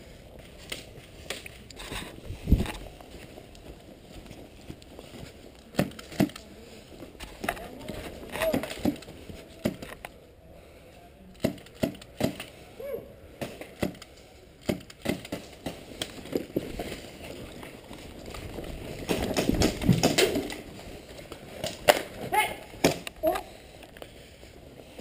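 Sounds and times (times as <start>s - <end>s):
running footsteps: 0.4s - 10.0s
gear rustling: 14.2s - 22.3s.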